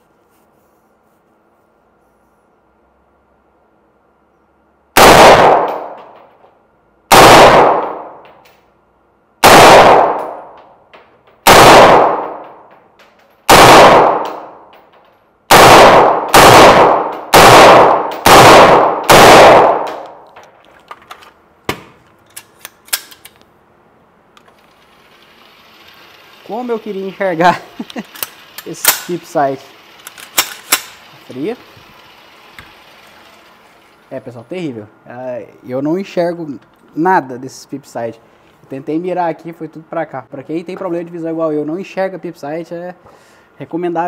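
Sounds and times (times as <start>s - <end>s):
gunshots echoing indoors: 4.9s - 6.3s, 7.1s - 8.4s, 9.4s - 10.7s, 11.4s - 12.8s, 13.5s - 14.7s, 15.5s - 20.3s.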